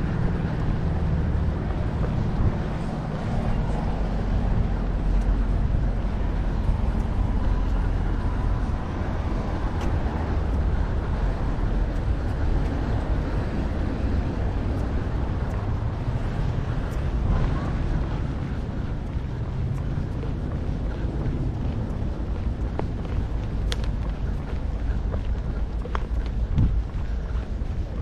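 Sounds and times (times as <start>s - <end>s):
low outdoor rumble: 0.0s - 28.0s.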